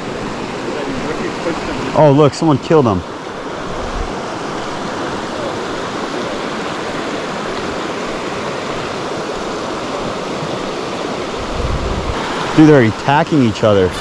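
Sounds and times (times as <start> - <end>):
creek rushing over rocks: 0.0 - 14.0.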